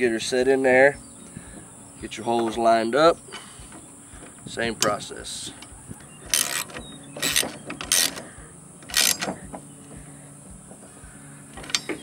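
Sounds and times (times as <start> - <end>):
metal parts scraping and clattering: 6.3 - 9.4.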